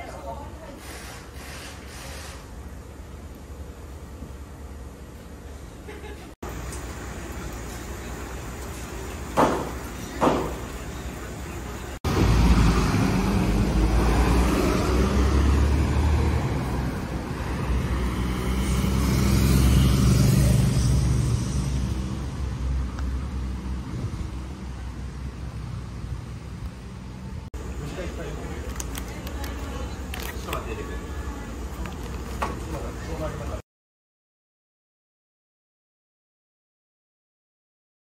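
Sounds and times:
bus engine pulling away: 1.0 - 33.6
sharp knocks: 9.4 - 10.6.

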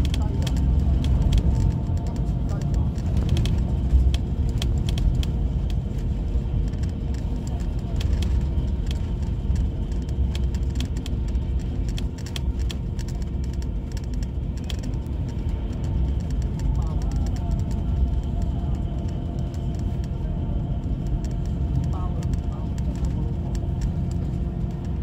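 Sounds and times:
faint constant hum: 0.0 - 25.0
road and engine rumble: 0.0 - 25.0.

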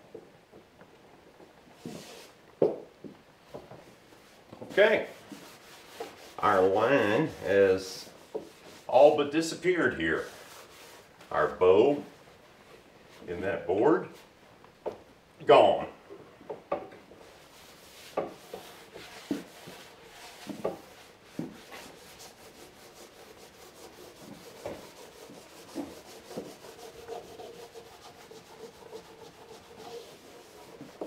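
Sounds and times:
hands rubbing on wood: 1.8 - 2.4, 4.2 - 11.3, 17.2 - 31.0.

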